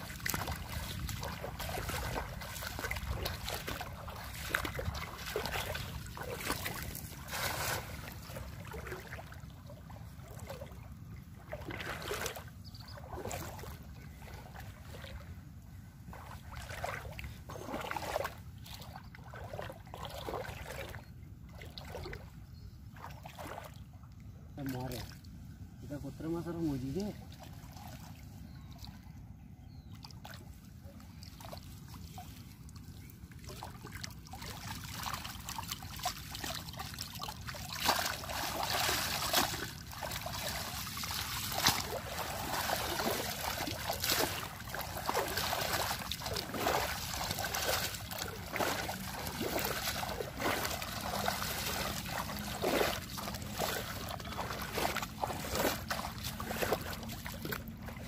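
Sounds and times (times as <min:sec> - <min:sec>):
water splashing and dripping: 0:00.0 - 0:10.8, 0:16.1 - 0:22.3, 0:31.2 - 0:58.0
wading through water: 0:00.0 - 0:58.0.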